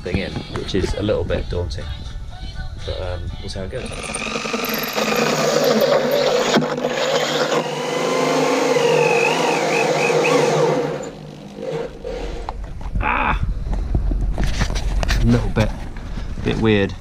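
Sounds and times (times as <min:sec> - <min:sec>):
power drill boring a hole: 0:03.8 - 0:12.4.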